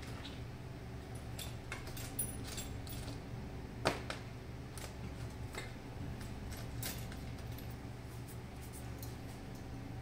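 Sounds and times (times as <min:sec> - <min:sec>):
steady low hum: 0:00.0 - 0:10.0
metal tools clicking and clinking: 0:01.2 - 0:03.2, 0:06.5 - 0:07.8.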